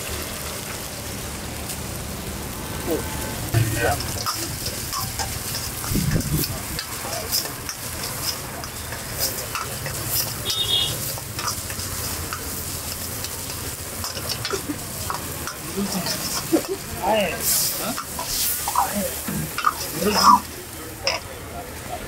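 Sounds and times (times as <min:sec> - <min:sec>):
onions sizzling in hot oil: 0:00.0 - 0:21.9
steady low rumble: 0:03.2 - 0:07.0
metal ladle scraping a wok: 0:03.6 - 0:20.5.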